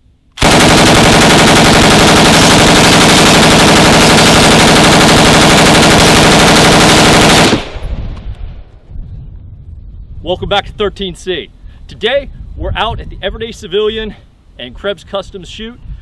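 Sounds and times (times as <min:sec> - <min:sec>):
machine gun full-auto burst: 0:00.4 - 0:07.8.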